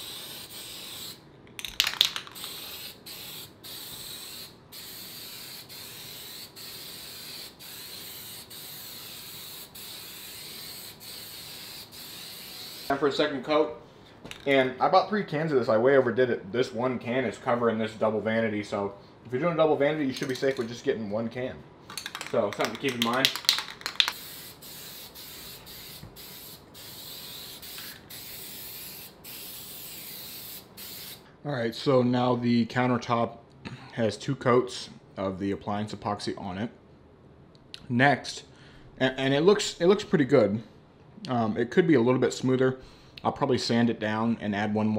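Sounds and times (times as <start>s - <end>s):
aerosol can spraying: 0.0s - 1.2s, 2.2s - 12.9s, 22.6s - 31.2s.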